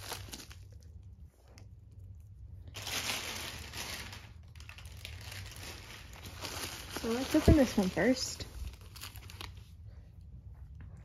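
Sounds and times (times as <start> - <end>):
plastic mailer rustling and crinkling: 0.0 - 0.9, 2.6 - 9.9.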